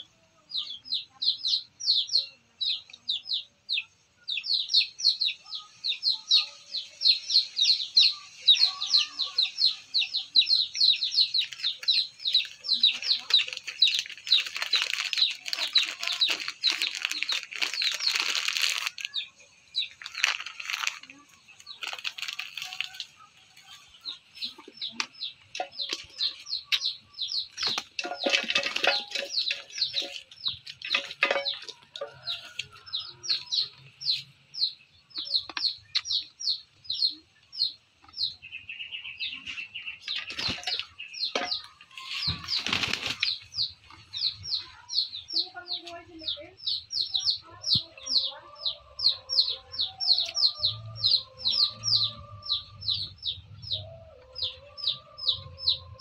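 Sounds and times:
wings flapping and scuffling: 0:11.2 - 0:19.2, 0:19.8 - 0:33.5, 0:39.5 - 0:44.8.

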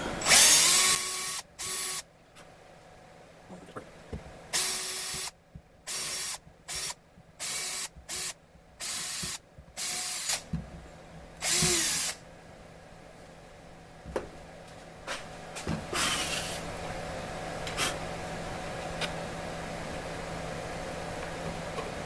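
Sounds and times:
cordless drill bursts: 0:00.0 - 0:02.0, 0:04.5 - 0:05.3, 0:05.9 - 0:10.4, 0:11.4 - 0:12.2.

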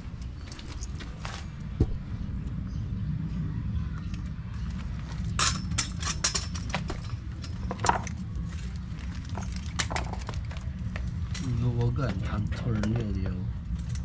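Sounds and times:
low rumble: 0:00.0 - 0:14.0
small metal parts clinking: 0:05.1 - 0:11.7.

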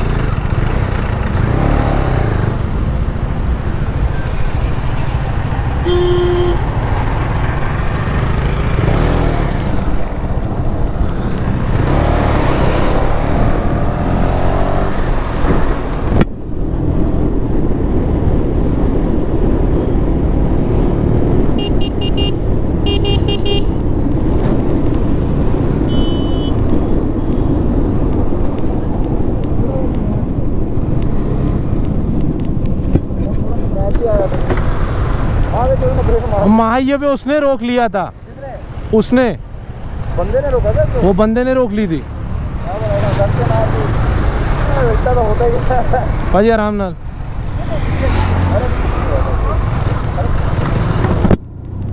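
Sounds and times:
motorcycle engine: 0:00.0 - 0:36.3
vehicle horns beeping: 0:05.8 - 0:06.7, 0:21.6 - 0:23.8, 0:25.8 - 0:26.6.

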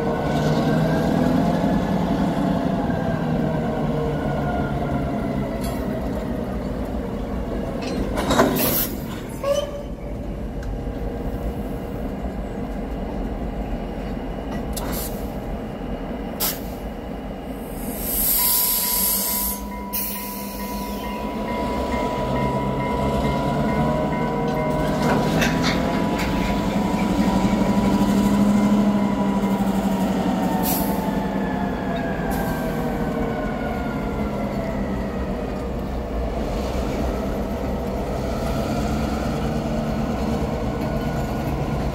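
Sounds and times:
freight train rumbling: 0:00.0 - 0:41.9
wheels clicking over rail joints: 0:05.5 - 0:11.0, 0:21.5 - 0:28.6.

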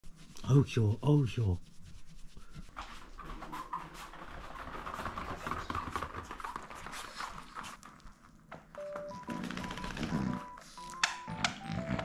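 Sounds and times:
dog claws clicking on hard floor: 0:02.8 - 0:08.8.

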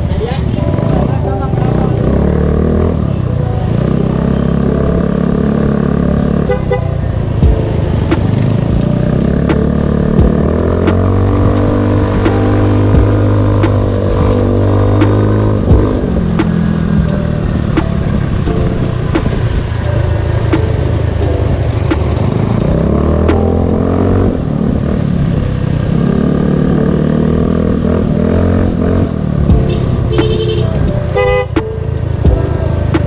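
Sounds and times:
scooter engine revving: 0:00.0 - 0:33.0
vehicle horn toot: 0:06.4 - 0:07.0, 0:29.6 - 0:31.6.

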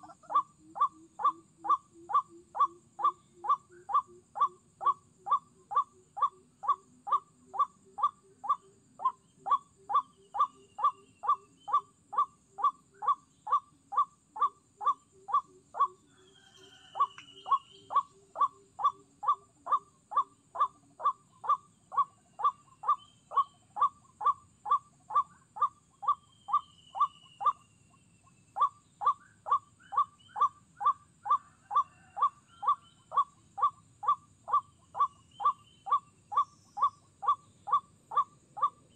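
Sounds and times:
waterhen call: 0:00.0 - 0:27.6, 0:28.6 - 0:38.9
faint high bird whistles: 0:16.3 - 0:18.9, 0:26.0 - 0:27.7.

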